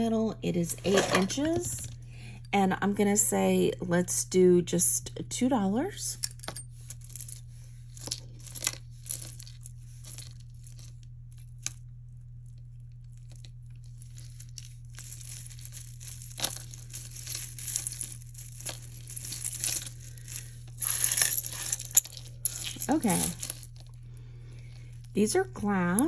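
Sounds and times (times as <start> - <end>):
jewelry clicking and clinking: 6.2 - 11.0, 13.2 - 26.0
crinkly rustle: 6.9 - 11.6, 12.5 - 26.0.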